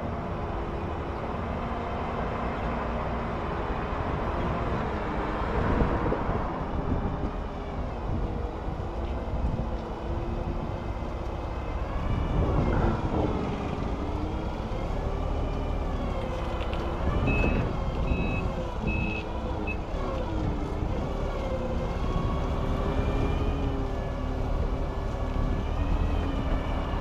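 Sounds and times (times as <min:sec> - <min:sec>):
reversing alarm beeps: 0:17.2 - 0:19.8.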